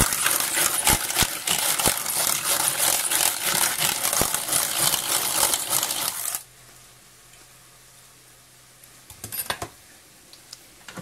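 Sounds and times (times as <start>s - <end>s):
egg beater gears clattering: 0.0s - 6.4s.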